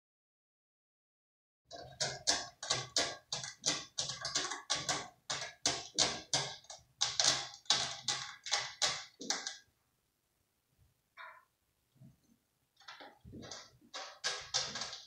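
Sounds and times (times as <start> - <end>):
cat claws scratching a post: 1.7 - 9.6, 12.8 - 15.0.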